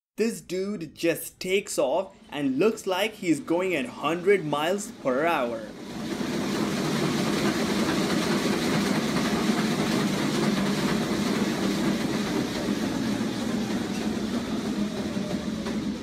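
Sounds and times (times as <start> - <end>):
treadmill belt clattering: 3.3 - 16.0
rapid running footfalls: 5.8 - 16.0.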